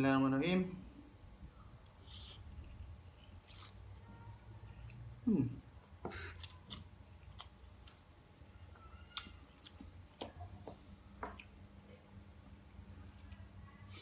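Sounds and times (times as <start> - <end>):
low steady hum: 0.0 - 14.0
man chewing noodles: 1.2 - 5.2, 6.1 - 8.0.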